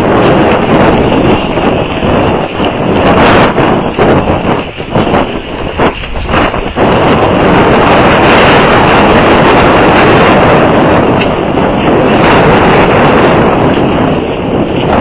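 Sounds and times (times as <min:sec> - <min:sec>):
strong wind buffeting microphone: 0:00.0 - 0:15.0.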